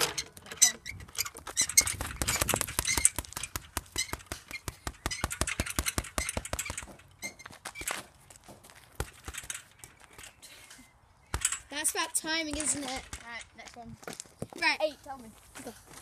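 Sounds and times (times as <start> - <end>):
gloves hitting speed ball: 1.8 - 7.0.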